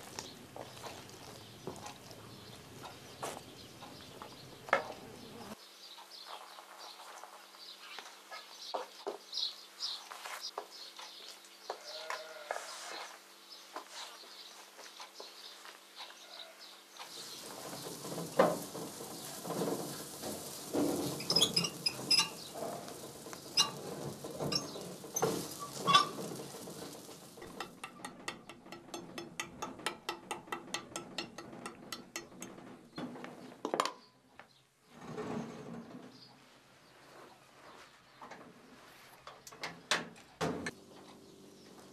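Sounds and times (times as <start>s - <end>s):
metal cookware clinking and knocking: 17.3s - 33.0s.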